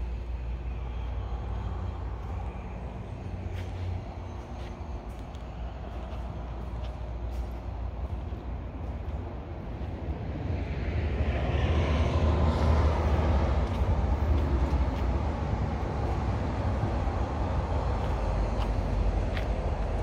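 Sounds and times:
highway traffic noise: 0.0 - 20.0
vehicle passing by: 9.7 - 20.0.

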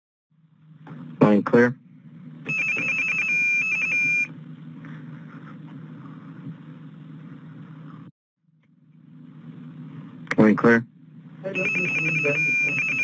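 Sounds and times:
phone line hum and hiss: 0.6 - 8.1, 8.7 - 13.0
telephone signalling beeps: 2.5 - 4.3, 11.5 - 13.0.

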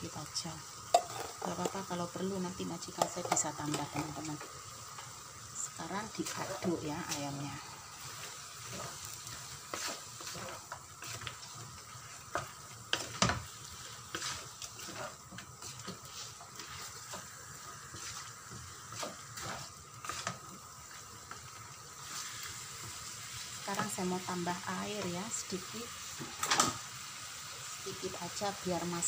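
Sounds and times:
food sizzling: 0.0 - 29.0
wooden spatula scraping pan: 8.0 - 17.3, 17.9 - 20.4.

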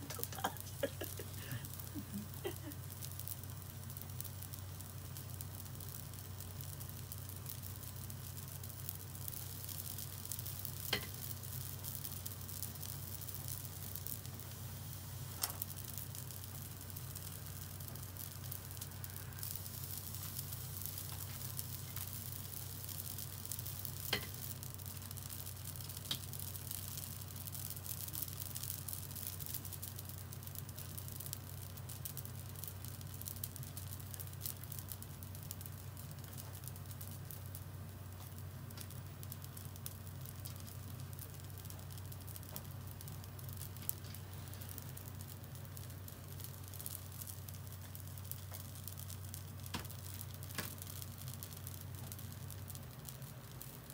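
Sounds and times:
glaze sizzling and crackling: 0.0 - 53.9
steady low hum: 0.0 - 53.9
sharp pops: 24.1 - 24.4.

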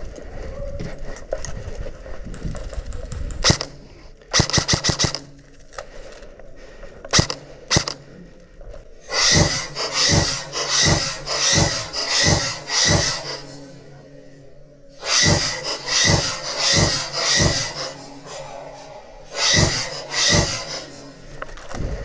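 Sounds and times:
airsoft guns firing: 3.4 - 5.3, 7.1 - 8.0, 9.2 - 13.4.

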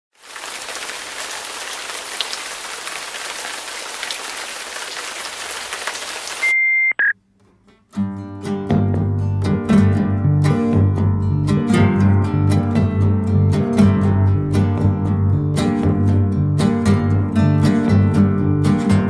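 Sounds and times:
loud high-pitched beep: 6.4 - 7.2
guitar music: 7.4 - 19.0.

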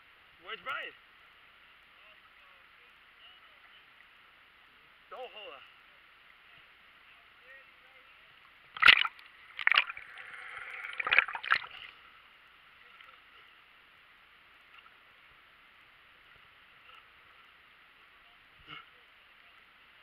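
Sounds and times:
faint steady hiss: 0.0 - 20.0
sharp splashes: 8.7 - 12.0
water slapping and gurgling: 8.8 - 12.0.

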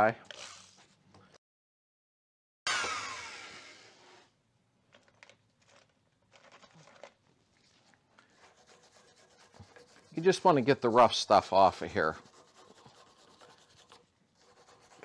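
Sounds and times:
wire wheel drill noise: 2.7 - 4.2.

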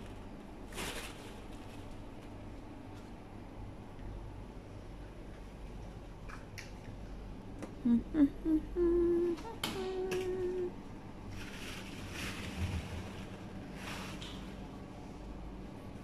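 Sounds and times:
rustling: 0.0 - 2.4, 11.3 - 14.6
person humming: 7.8 - 10.8.

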